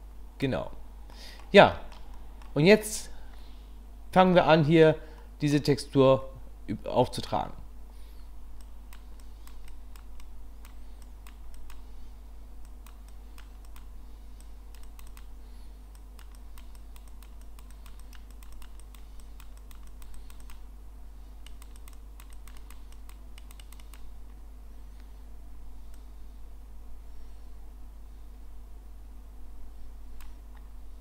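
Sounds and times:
low electrical hum: 0.0 - 31.0
computer clicks and taps: 8.6 - 11.9, 12.6 - 15.3, 15.9 - 20.6, 21.4 - 24.4.

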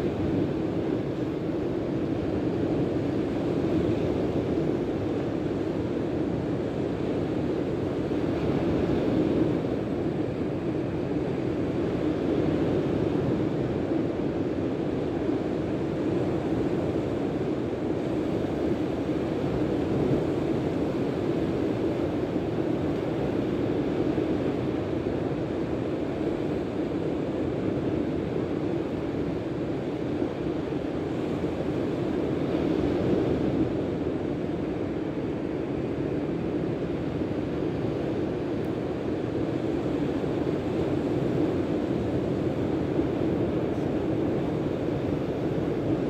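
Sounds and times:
surf on beach: 0.0 - 46.0.

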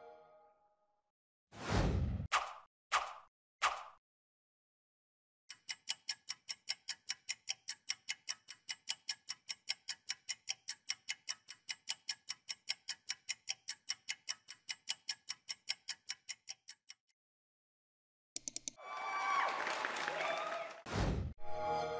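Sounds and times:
clock ticking: 5.5 - 17.1, 18.4 - 18.8.

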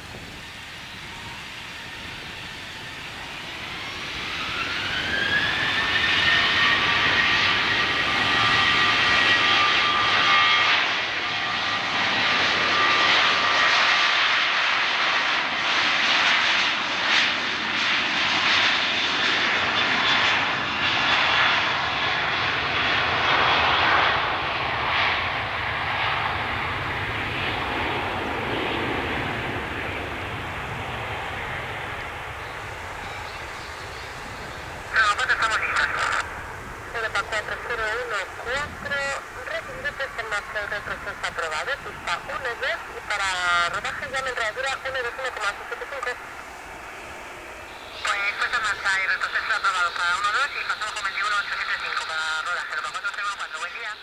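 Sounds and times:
jet engines spooling up: 0.0 - 22.5, 25.5 - 51.9.

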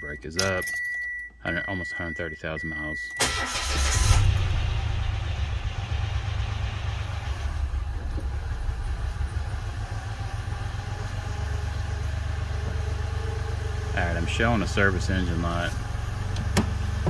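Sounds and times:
car engine revving then idling: 3.6 - 17.0.

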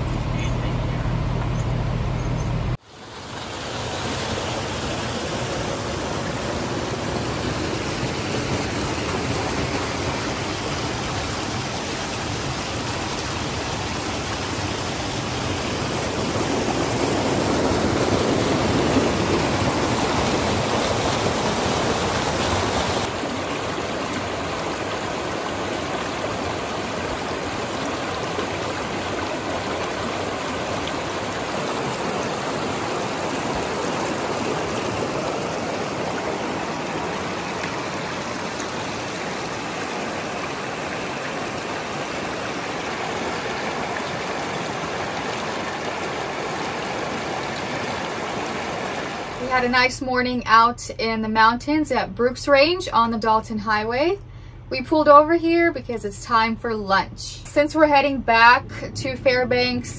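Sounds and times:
creek rushing over rocks: 2.8 - 49.6.

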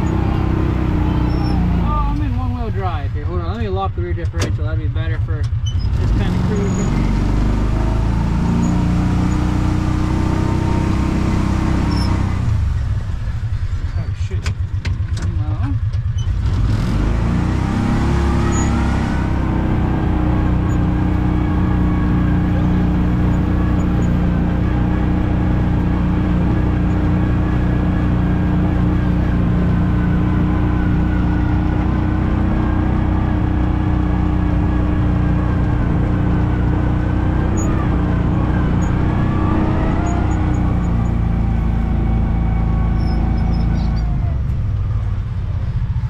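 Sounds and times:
utility vehicle engine running: 0.0 - 46.0.

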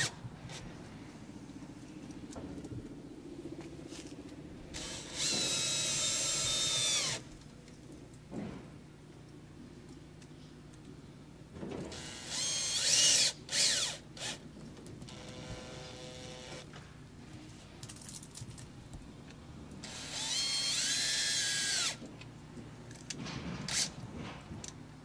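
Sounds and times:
cordless drill whining: 4.8 - 7.2, 11.9 - 14.4, 15.1 - 16.6, 19.8 - 22.0.

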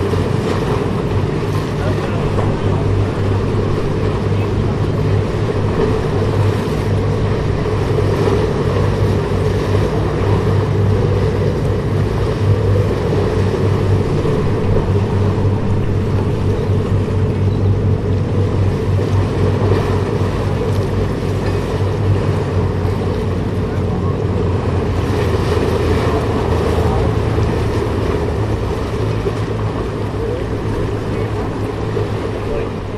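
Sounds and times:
ship engines rumbling: 0.0 - 32.9.

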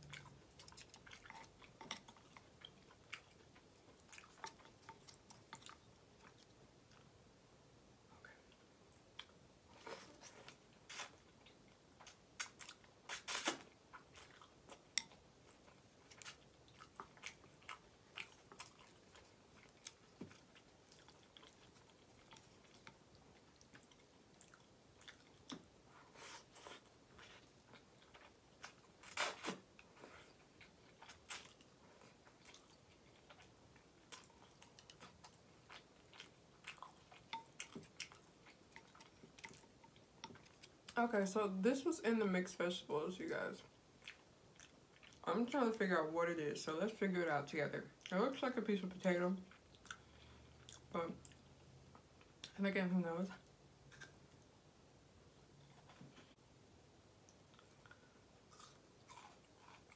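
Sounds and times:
chewing noodles: 0.0 - 7.1, 8.9 - 41.0, 43.6 - 45.3, 49.4 - 52.5, 57.2 - 59.9
wet mouth clicks: 10.9 - 11.1, 12.4 - 13.7.

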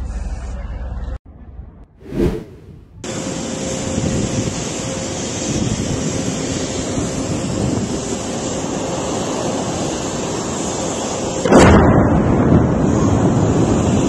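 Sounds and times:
fire roaring: 2.0 - 3.0.

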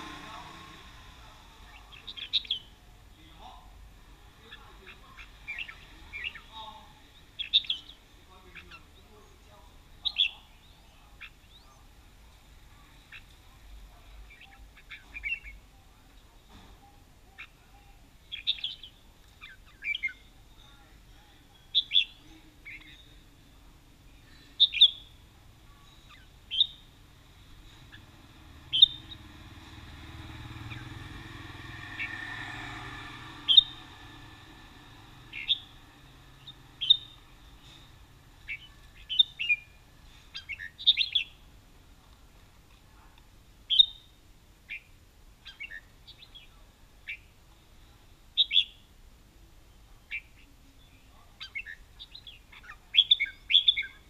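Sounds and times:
vehicle passing rumble: 0.0 - 9.2, 26.9 - 42.0
birds chirping: 0.0 - 54.0.

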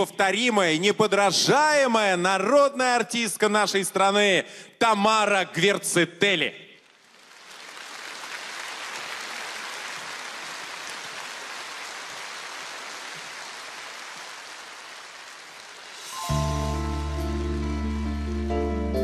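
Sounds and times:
audience applauding: 6.9 - 18.5.

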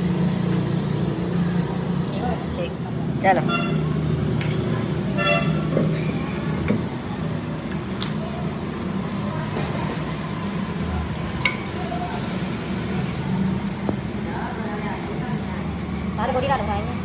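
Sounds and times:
light metallic clinks: 4.4 - 4.8, 11.0 - 11.8.

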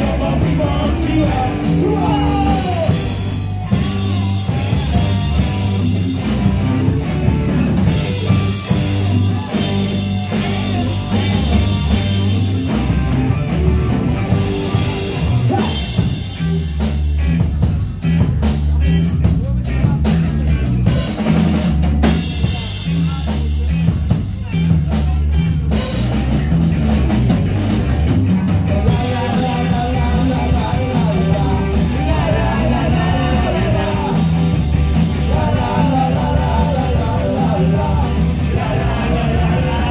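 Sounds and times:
person singing: 0.0 - 6.3, 14.3 - 16.8, 28.2 - 39.9
live rock band playing: 0.0 - 39.9.

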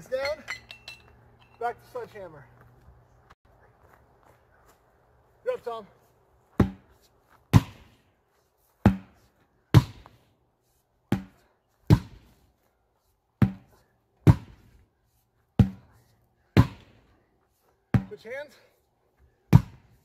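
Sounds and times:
sledgehammers striking tractor tire: 6.6 - 6.9, 7.5 - 8.0, 8.8 - 10.1, 13.4 - 14.7, 15.6 - 15.8, 16.6 - 16.9, 19.5 - 20.0.

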